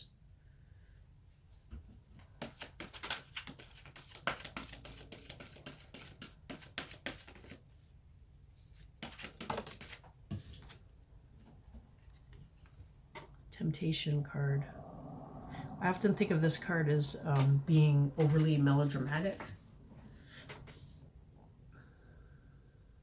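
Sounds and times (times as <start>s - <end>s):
cards being shuffled: 2.3s - 7.6s, 8.7s - 10.8s.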